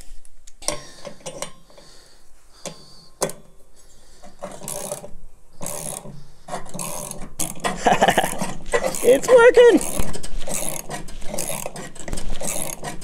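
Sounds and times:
socket ratchet clicking: 4.5 - 7.8.

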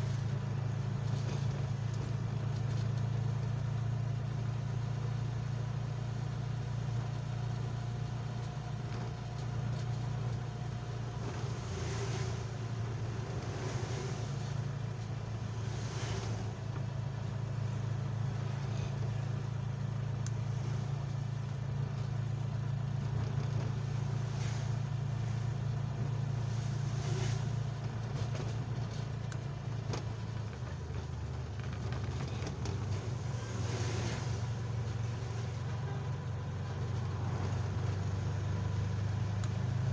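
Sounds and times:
engine droning: 0.0 - 39.9
tyres hissing on wet road: 11.0 - 19.4, 23.8 - 28.0, 32.9 - 36.0.

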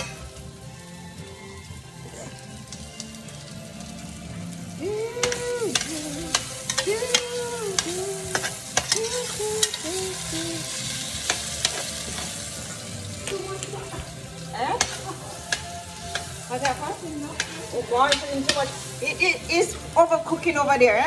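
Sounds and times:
potatoes sizzling in a pan: 0.0 - 21.0
metal spoon scraping a pan: 5.2 - 12.9, 14.8 - 19.8.

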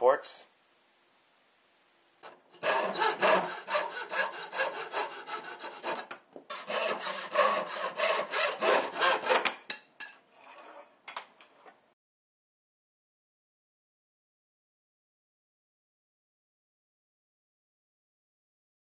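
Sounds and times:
hacksaw cutting wood: 2.2 - 9.6.

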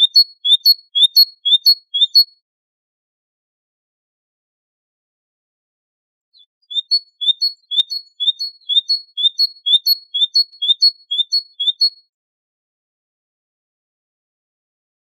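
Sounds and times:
great tit singing: 0.0 - 2.3, 6.4 - 12.0.

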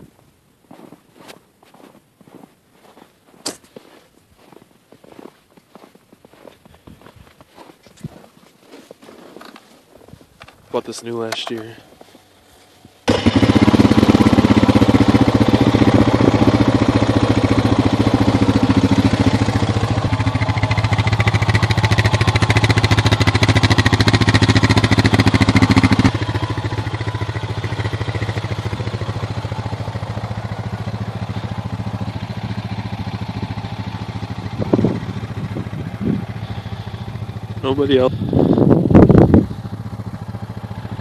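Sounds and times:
engine starting: 13.0 - 13.9
engine idling: 13.0 - 41.0.

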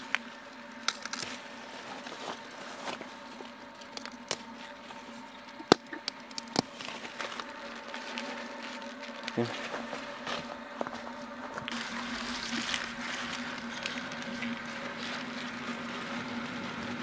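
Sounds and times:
faint hum: 0.0 - 17.0
spinach stalks snapping: 0.8 - 1.4, 5.6 - 6.8.

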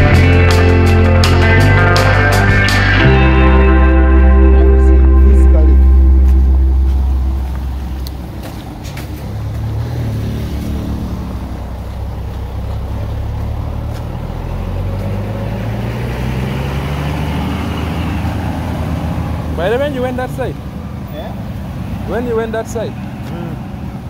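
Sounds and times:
background music: 0.0 - 8.4
road noise: 0.0 - 24.0
vehicle engine running: 0.0 - 24.0.

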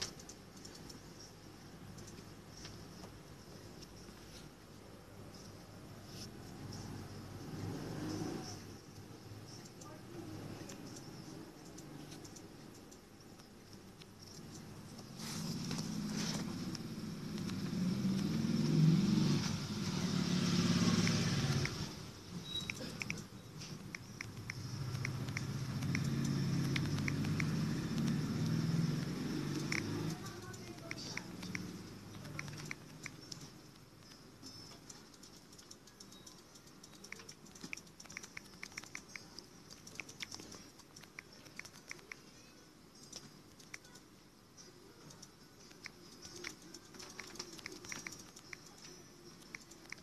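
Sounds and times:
vehicle engine running: 14.3 - 22.2, 23.8 - 33.3
phone keyboard tapping clicks: 22.6 - 28.2, 29.5 - 33.8, 34.4 - 42.2, 45.1 - 50.0.

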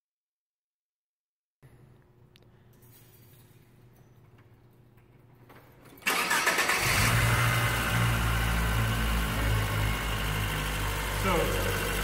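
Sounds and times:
car starter cranking: 6.0 - 8.3
car engine idling: 6.1 - 12.0.

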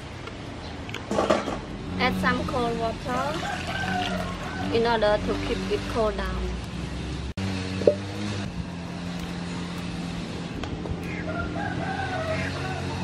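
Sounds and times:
rooster crowing: 3.3 - 4.8, 11.3 - 13.0.

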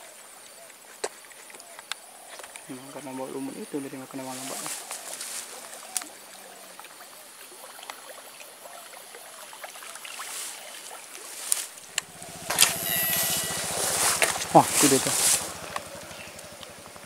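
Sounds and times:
water trickling and rippling: 3.0 - 17.0
light ticks: 15.4 - 16.7.

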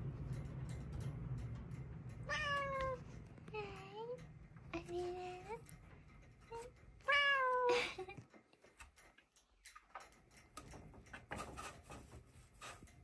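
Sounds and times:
soft clicks and rustling: 0.0 - 13.0.

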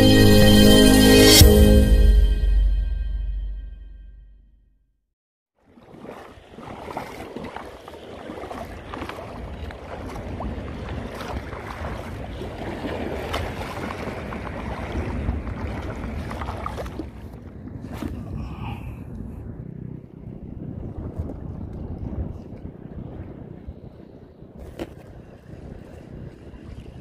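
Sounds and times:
music: 0.0 - 4.6
choppy sea water: 5.5 - 27.0
wind buffeting microphone: 8.3 - 27.0.

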